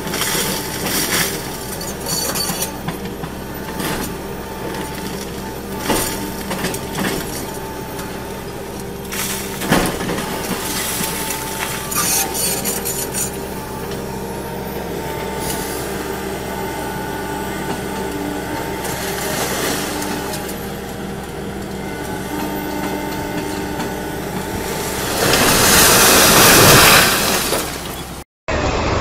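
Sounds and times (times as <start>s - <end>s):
diesel excavator engine: 0.0s - 29.0s
masonry and rubble collapsing: 0.0s - 29.0s.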